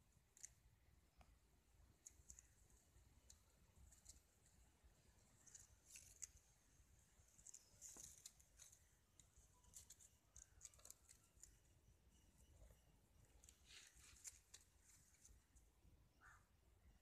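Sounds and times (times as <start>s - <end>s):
kittens scuffling on concrete: 5.2s - 11.5s, 13.4s - 15.6s.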